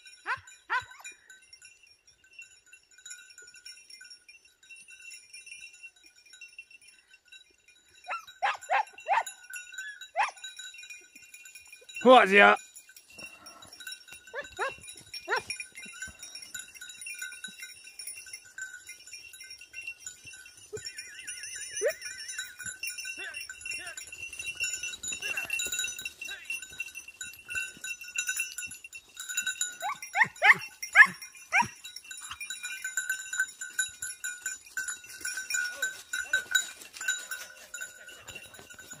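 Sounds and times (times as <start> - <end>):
dog collar bells ringing: 0.0 - 39.0
hounds yelping: 0.3 - 1.2, 8.0 - 10.5, 13.5 - 15.6, 20.7 - 22.6, 29.7 - 32.9.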